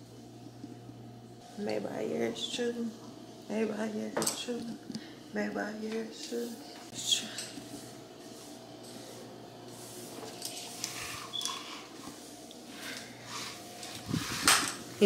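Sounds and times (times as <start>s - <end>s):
faint steady hum: 0.0s - 15.0s
broom sweeping wood floor: 6.1s - 15.0s.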